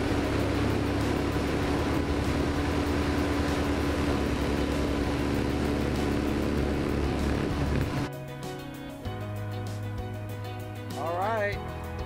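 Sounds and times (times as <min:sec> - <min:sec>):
rush of wind and water: 0:00.0 - 0:08.1
boat motor humming: 0:00.0 - 0:10.7.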